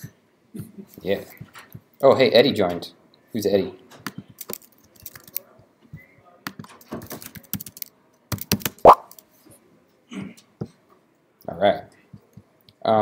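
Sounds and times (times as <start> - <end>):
typing on laptop keyboard: 4.0 - 5.4, 6.4 - 8.8.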